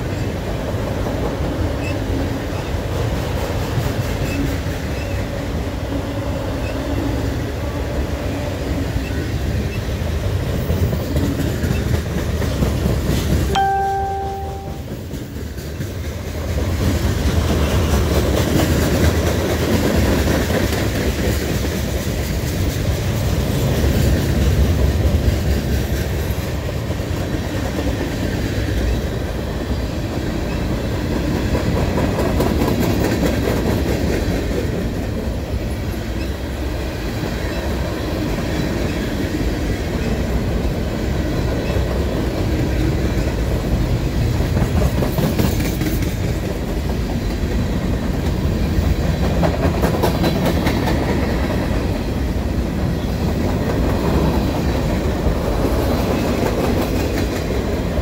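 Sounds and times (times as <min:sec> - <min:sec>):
train wheels rumbling on rail: 0:00.0 - 0:58.0
short steady tone: 0:13.5 - 0:15.0.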